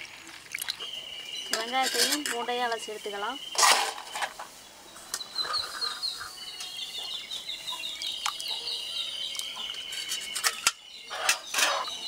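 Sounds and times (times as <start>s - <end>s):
water splashing in pot: 0.0s - 0.9s
birds chirping: 0.0s - 12.0s.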